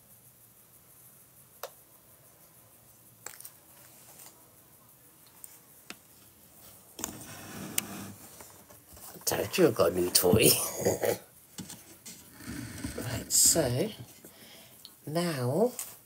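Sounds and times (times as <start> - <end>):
handling noise: 6.6 - 14.4.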